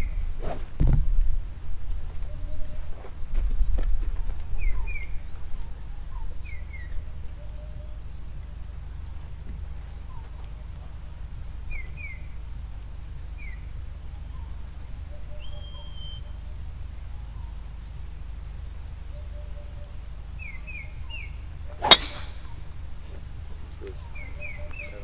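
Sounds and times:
birds chirping: 0:00.0 - 0:25.0
low outdoor rumble: 0:00.0 - 0:25.0
golf driver striking ball: 0:21.7 - 0:22.7.

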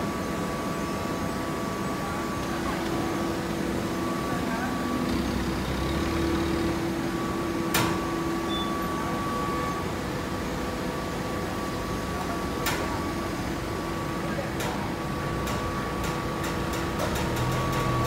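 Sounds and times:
machinery humming: 0:00.0 - 0:18.0.

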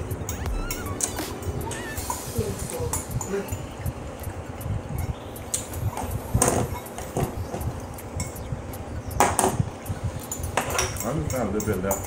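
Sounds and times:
metal fork clinking on glass bowl: 0:10.2 - 0:12.0.

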